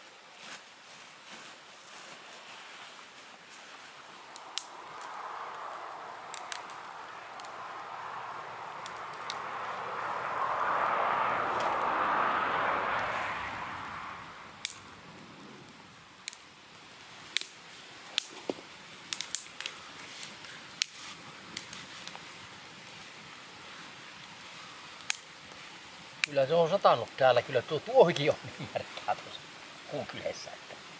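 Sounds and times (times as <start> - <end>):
rushing sound: 3.9 - 15.6
sticks and bark snapping: 4.3 - 7.8, 8.8 - 9.6, 14.6 - 14.9, 16.2 - 16.4, 17.2 - 22.2, 25.0 - 25.3.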